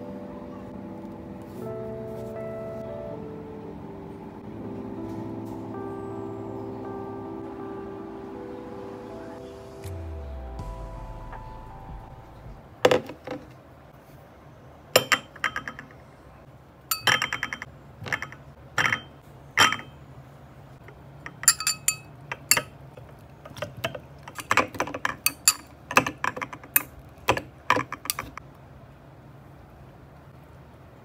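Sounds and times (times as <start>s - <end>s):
glassware clinking: 15.0s - 16.0s, 16.9s - 20.0s, 21.3s - 22.7s, 24.3s - 26.5s.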